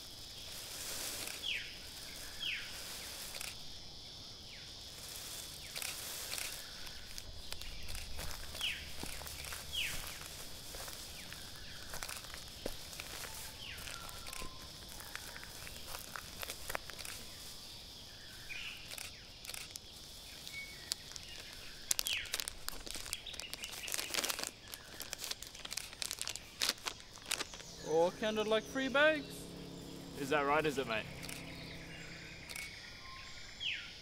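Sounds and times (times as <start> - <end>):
plastic tape crinkling: 0.0 - 3.6, 5.2 - 17.6, 18.8 - 27.7
steady high hiss: 0.0 - 34.0
bird chirps: 4.5 - 34.0.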